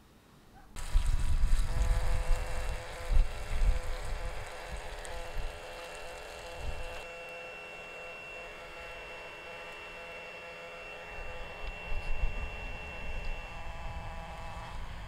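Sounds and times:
wind rumbling on microphone: 0.8s - 7.0s, 11.8s - 15.0s.

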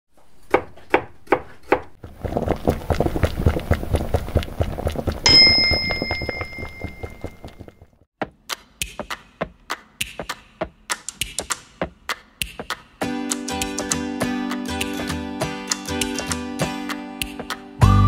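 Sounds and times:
bell ding: 5.3s - 7.2s.

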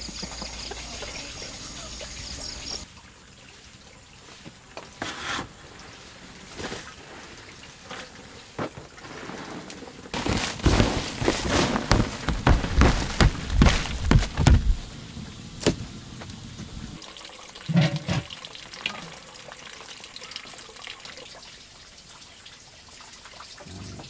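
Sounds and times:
leaves rustling and crunching: 8.5s - 15.0s.

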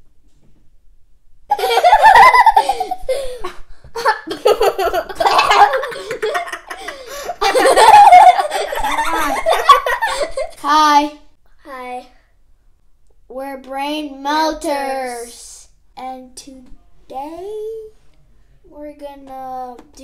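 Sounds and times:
kids laughing: 1.5s - 10.6s.

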